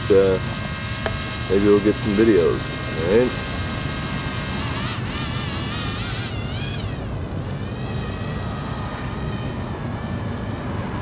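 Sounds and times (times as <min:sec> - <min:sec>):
drone propellers whining: 0:00.0 - 0:11.0
steady low rumble: 0:00.0 - 0:11.0.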